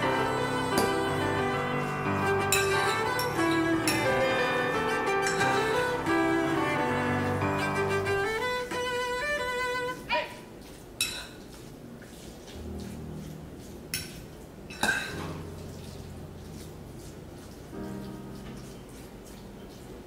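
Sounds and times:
violin melody: 0:00.0 - 0:10.2
fork clinking on ceramic dish: 0:13.9 - 0:15.4.

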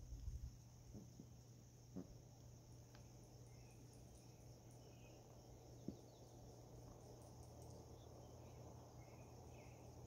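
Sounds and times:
high insect hiss: 0:00.0 - 0:10.0
faint bird chirps: 0:02.9 - 0:10.0.

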